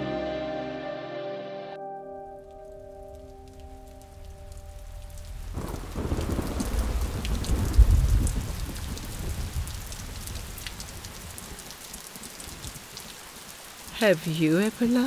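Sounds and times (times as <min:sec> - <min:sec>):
steady rain falling: 0:02.4 - 0:15.0
thunder rolling: 0:03.1 - 0:10.6.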